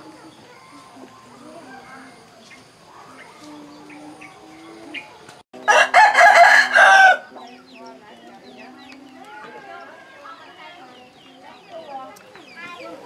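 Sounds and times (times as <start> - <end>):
rooster crowing: 5.6 - 7.3.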